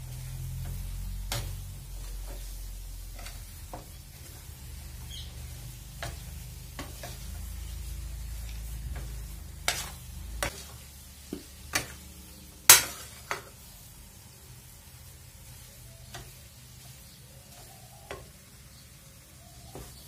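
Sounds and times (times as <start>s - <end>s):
metal spoon scraping pan: 0.2s - 12.0s.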